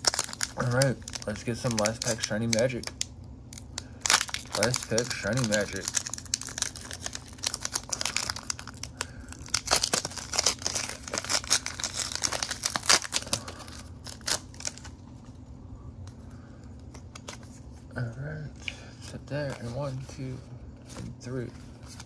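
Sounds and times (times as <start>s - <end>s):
foil wrapper crinkling and tearing: 0.0s - 15.0s.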